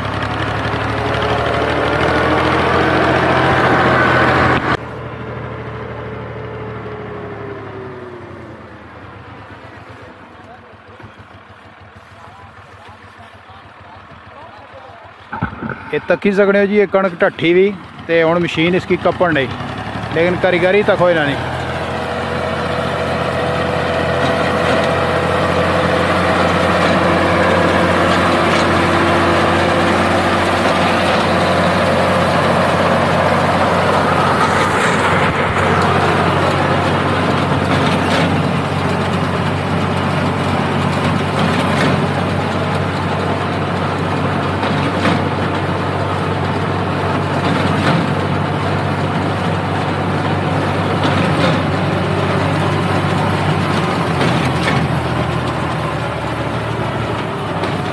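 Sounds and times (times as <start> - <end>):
tractor engine running: 0.0 - 57.9
sharp clack: 15.3 - 17.2.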